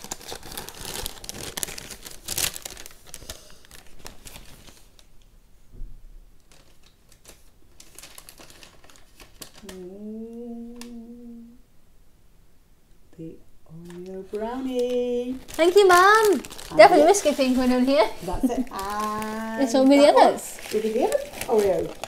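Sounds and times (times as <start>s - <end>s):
plastic packaging crinkling: 0.0s - 5.2s, 6.4s - 9.8s, 13.8s - 22.0s.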